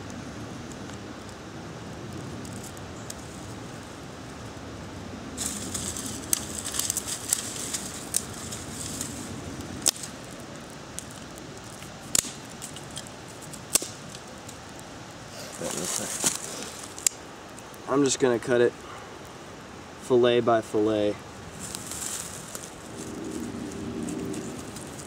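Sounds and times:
fire of twigs crackling: 0.0 - 25.0
sharp pops from fire: 2.0 - 4.6, 5.4 - 17.8, 21.5 - 25.0.

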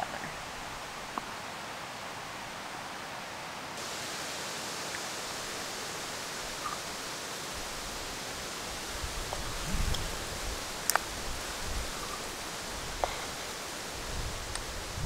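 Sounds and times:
outdoor background hiss: 0.0 - 15.0
faint small clicks: 10.8 - 11.1.

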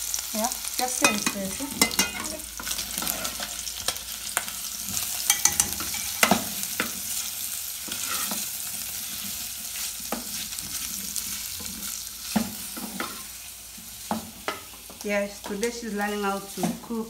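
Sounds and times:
meat and onions sizzling: 0.0 - 17.0
spoon scraping and knocking pot: 1.0 - 2.4, 5.2 - 6.9.

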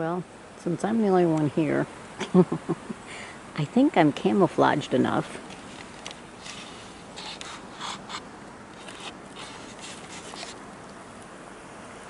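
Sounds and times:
fabric rustling against camera: 5.4 - 10.6.

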